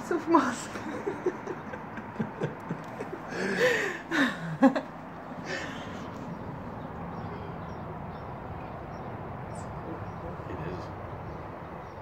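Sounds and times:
city background hum: 0.0s - 12.0s
person chuckling: 1.1s - 4.9s.

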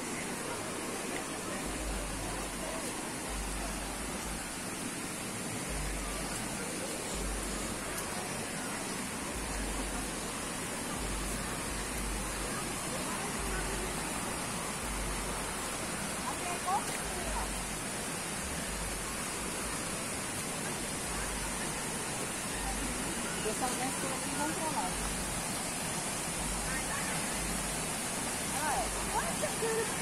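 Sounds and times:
waterfall and river rushing: 0.0s - 30.0s.

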